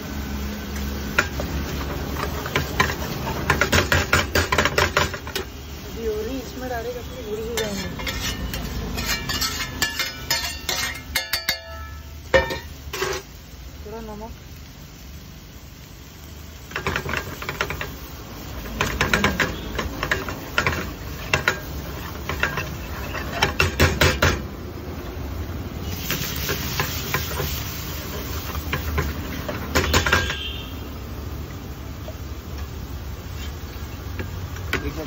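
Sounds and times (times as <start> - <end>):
metal ladle scraping frying pan: 7.3 - 13.3, 18.6 - 24.3
pan hissing: 25.3 - 31.3.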